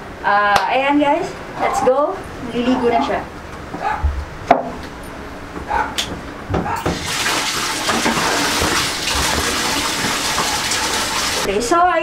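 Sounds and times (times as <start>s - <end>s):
water running from tap: 6.9s - 11.5s.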